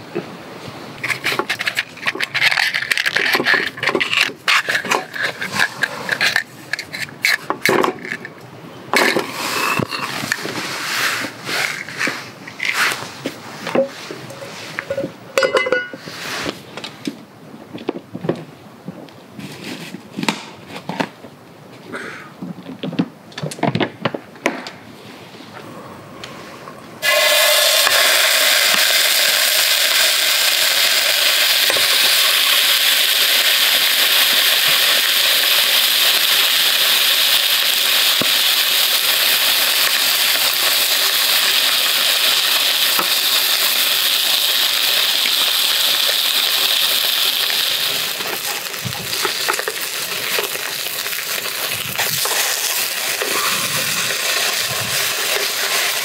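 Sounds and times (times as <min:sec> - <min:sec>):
meat sizzling in a pan: 0:27.0 - 0:56.0.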